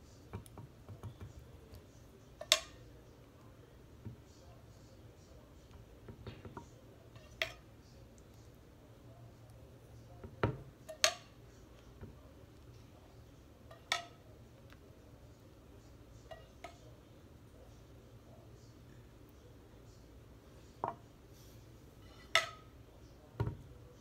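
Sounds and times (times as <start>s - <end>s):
utensil clinking against pan and dish: 6.1s - 7.7s, 10.4s - 11.4s, 13.6s - 14.2s.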